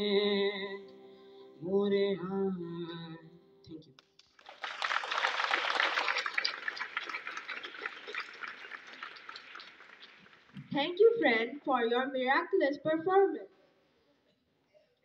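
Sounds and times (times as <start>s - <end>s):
boy singing over loudspeaker: 0.0s - 3.3s
crowd applauding: 4.2s - 10.8s.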